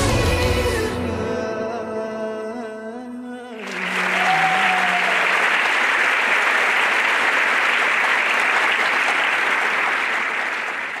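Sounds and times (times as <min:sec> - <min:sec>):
audience clapping: 0:03.6 - 0:11.0.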